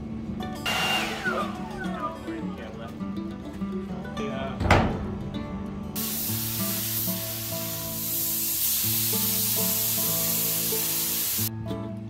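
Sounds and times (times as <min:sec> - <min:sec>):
acoustic guitar music: 0:00.0 - 0:12.0
spray gun hissing: 0:00.7 - 0:01.6, 0:06.0 - 0:11.5.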